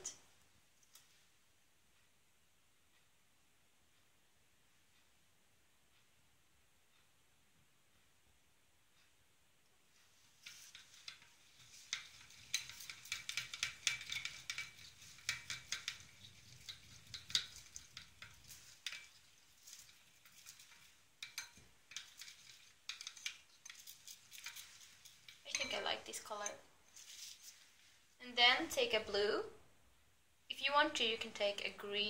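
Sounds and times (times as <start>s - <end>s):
spoon clinking and scraping bowl: 10.1s - 28.0s.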